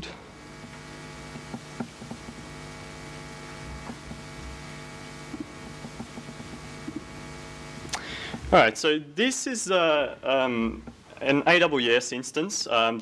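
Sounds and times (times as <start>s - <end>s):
steady electrical hum: 0.0s - 13.0s
faint hiss: 6.7s - 13.0s.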